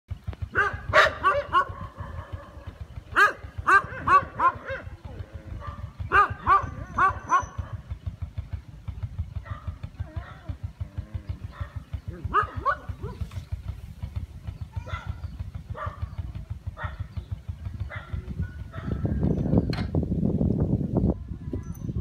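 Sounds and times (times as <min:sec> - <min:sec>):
low rumble: 0:00.1 - 0:22.0
dog barking: 0:00.5 - 0:07.9, 0:09.4 - 0:10.6, 0:11.5 - 0:13.3, 0:14.8 - 0:16.2, 0:16.8 - 0:17.1, 0:17.9 - 0:19.0.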